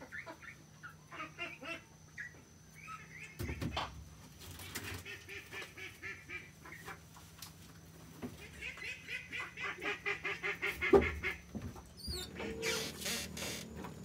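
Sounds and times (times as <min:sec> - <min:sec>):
fowl honking calls: 0:08.4 - 0:13.6.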